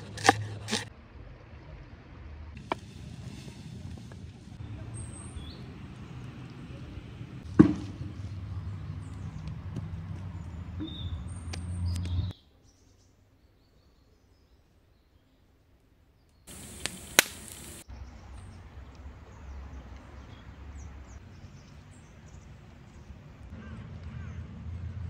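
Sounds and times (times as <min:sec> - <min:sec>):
campfire crackling: 0:02.6 - 0:12.2, 0:16.4 - 0:24.2
birds chirping: 0:04.4 - 0:24.6
sharp cracks: 0:16.5 - 0:17.8.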